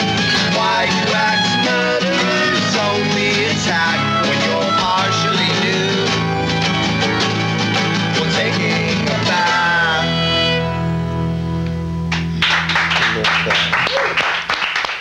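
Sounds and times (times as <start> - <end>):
acoustic rock band singing: 0.0 - 11.6
applause: 12.1 - 15.0.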